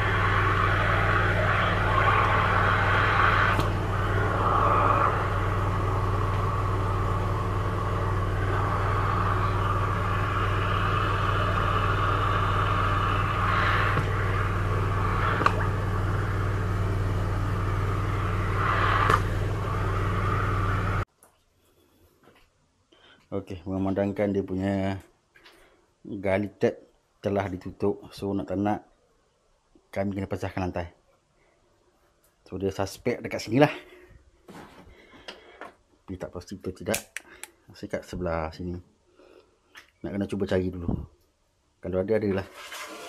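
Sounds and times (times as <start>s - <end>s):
high-pressure water jet hissing: 0.0s - 21.0s
pump hum: 0.0s - 21.1s.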